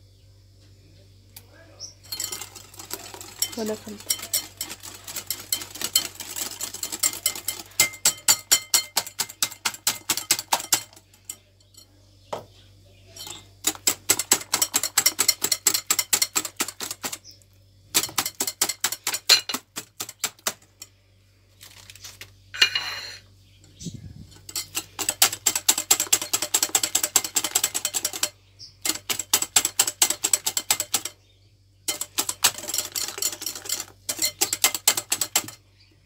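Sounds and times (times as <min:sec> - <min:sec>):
wire whisk clinking against glass: 0:02.0 - 0:12.0, 0:13.2 - 0:16.9, 0:24.3 - 0:31.2, 0:31.9 - 0:35.6.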